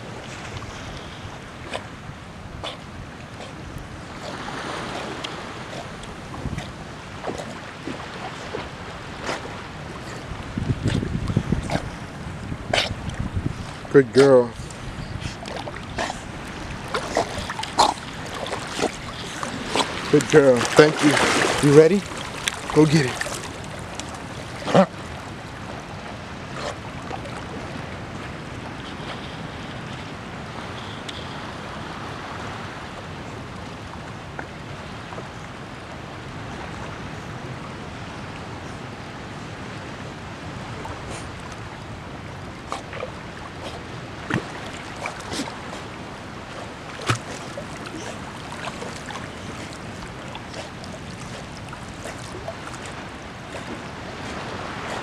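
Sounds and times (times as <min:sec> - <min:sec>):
lapping water: 0:00.0 - 0:30.1, 0:40.6 - 0:55.0
wind buffeting microphone: 0:00.0 - 0:30.6
wind: 0:00.0 - 0:55.0.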